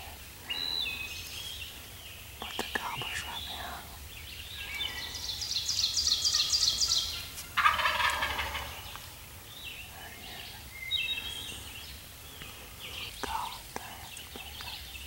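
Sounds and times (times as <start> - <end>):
turkeys gobbling: 5.9 - 9.2.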